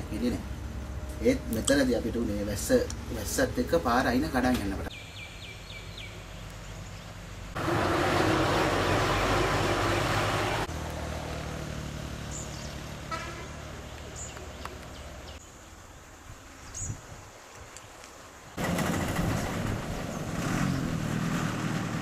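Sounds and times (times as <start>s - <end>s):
low engine hum: 0.0s - 15.4s
bird chirps: 4.9s - 7.2s
vehicle passing by: 7.4s - 15.4s, 18.6s - 22.0s
vehicle horn: 13.0s - 13.7s.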